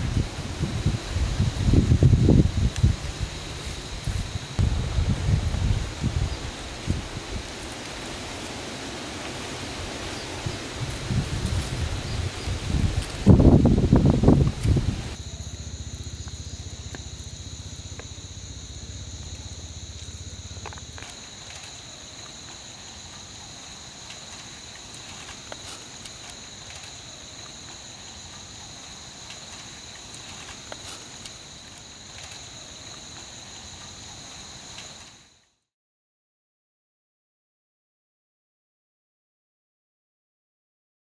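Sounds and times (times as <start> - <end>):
insect chorus drone: 0.0 - 35.7
low rumble: 4.6 - 7.1
faint ticks: 29.2 - 35.2.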